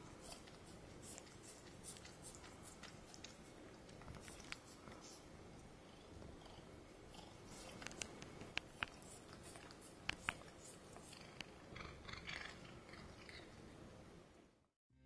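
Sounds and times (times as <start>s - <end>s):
cat purring: 0.0s - 14.2s
wet licking: 0.2s - 5.2s, 7.4s - 11.6s.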